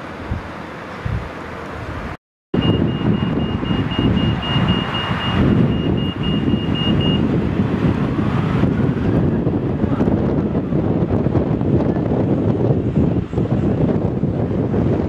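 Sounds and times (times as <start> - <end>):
wind buffeting microphone: 0.0 - 15.0
rapid high-pitched electronic beeping: 2.6 - 7.2.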